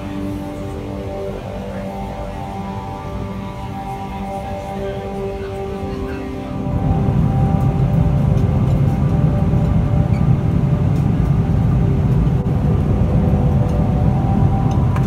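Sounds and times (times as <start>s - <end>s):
airplane cabin engine rumble: 0.0s - 15.0s.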